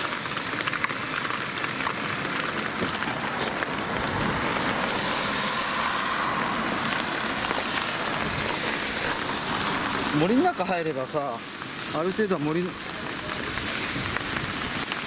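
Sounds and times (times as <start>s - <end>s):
raindrops ticking: 0.0s - 15.0s
steady rain falling: 0.0s - 15.0s.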